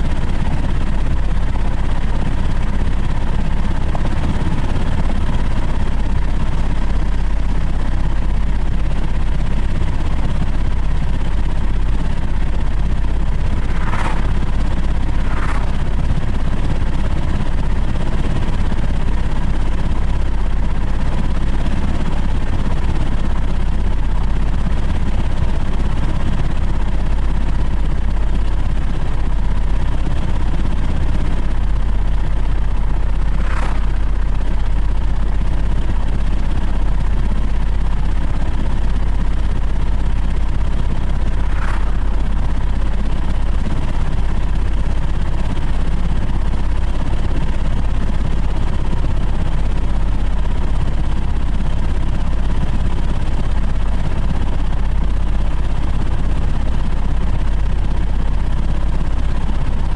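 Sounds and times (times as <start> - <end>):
wind and road rumble from car: 12.4 - 18.7, 30.8 - 36.4, 40.9 - 44.4
brief swishes: 13.7 - 14.3.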